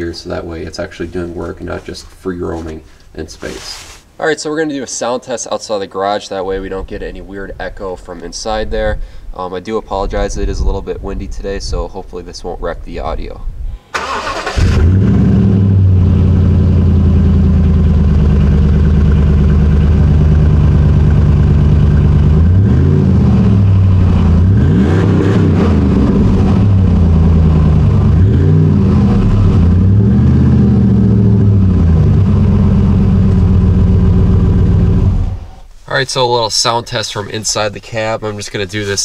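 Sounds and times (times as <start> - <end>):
truck engine idling and revving: 14.5 - 35.5.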